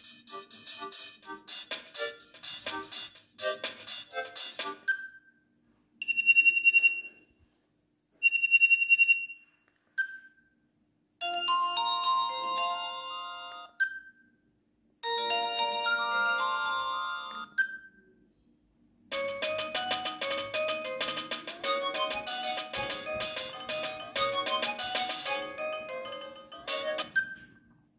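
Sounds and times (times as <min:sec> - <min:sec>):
melodic phone ringtones: 0:11.2 - 0:13.8, 0:15.0 - 0:17.8, 0:19.1 - 0:27.5
high trilling ringtone bursts: 0:19.1 - 0:27.3.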